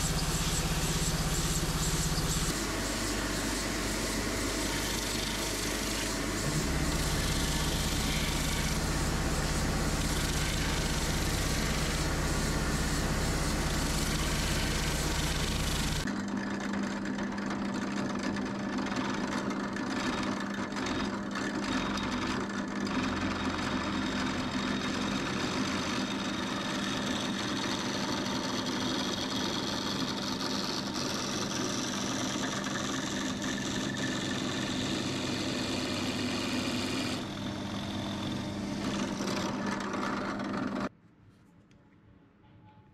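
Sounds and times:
electric drill boring into wood: 0:00.0 - 0:16.1, 0:27.5 - 0:40.9
spindle sander running: 0:00.0 - 0:16.1, 0:30.0 - 0:40.9.

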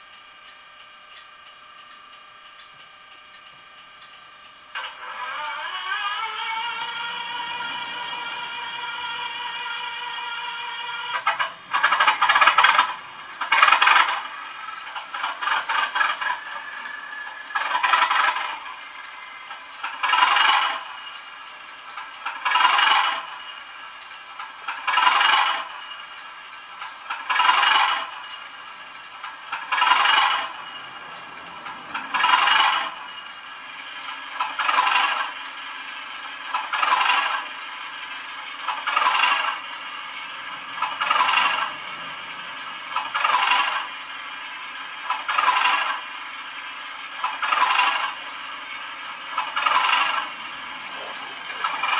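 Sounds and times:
metallic rattling from small speaker: 0:46.8 - 0:51.9.

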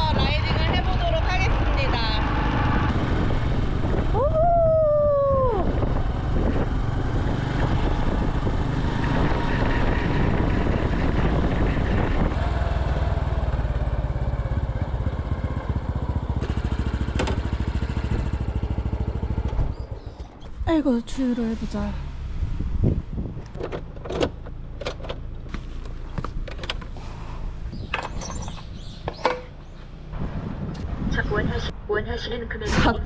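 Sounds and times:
wind and road noise: 0:00.0 - 0:33.0
pitched tone rising and falling: 0:04.1 - 0:06.2
motorcycle engine running: 0:05.4 - 0:20.8.

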